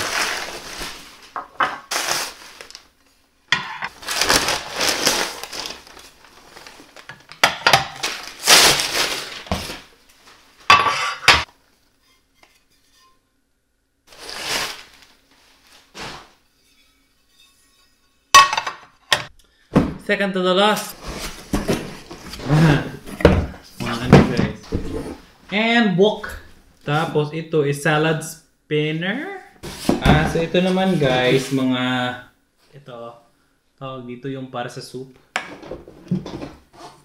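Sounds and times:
bubble wrap and paper crinkling: 0.0 - 3.1, 3.9 - 10.7, 14.1 - 16.4.

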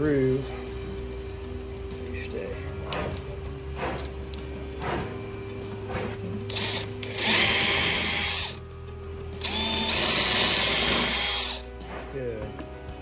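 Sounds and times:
cordless drill boring into wood: 6.5 - 8.6, 9.4 - 11.7.

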